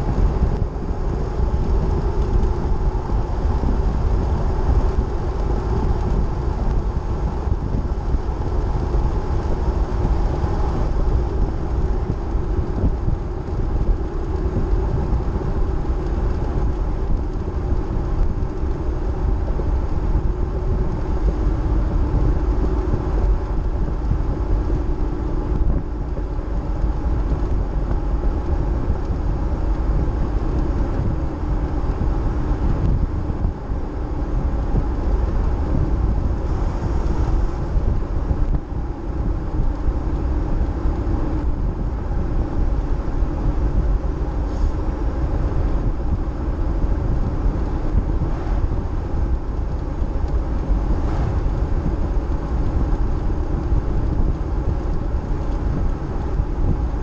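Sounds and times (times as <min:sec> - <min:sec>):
car engine and tyre rumble: 0:00.0 - 0:57.0.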